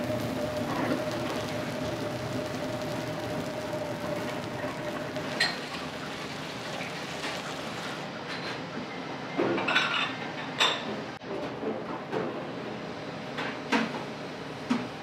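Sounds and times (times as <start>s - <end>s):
steady hiss: 0.0s - 8.1s.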